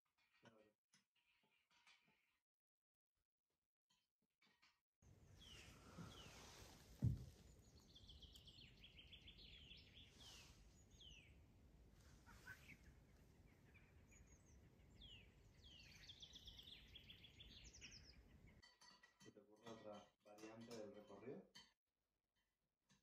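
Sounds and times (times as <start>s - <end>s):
small birds chirping and trilling: 5.0s - 21.3s
low outdoor hiss: 5.1s - 17.4s.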